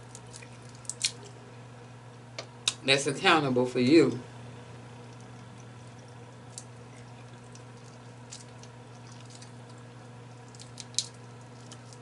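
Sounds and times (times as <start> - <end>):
shrimp shell crackling: 0.0 - 1.4, 5.2 - 12.0
low electrical hum: 0.0 - 12.0.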